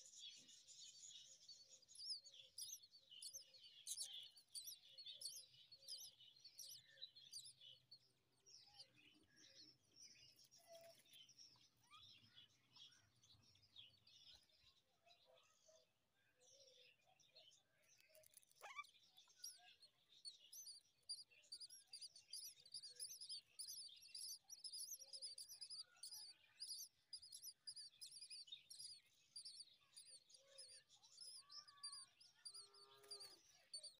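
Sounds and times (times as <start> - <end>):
nestlings chirping: 1.8 - 8.0, 17.9 - 34.0.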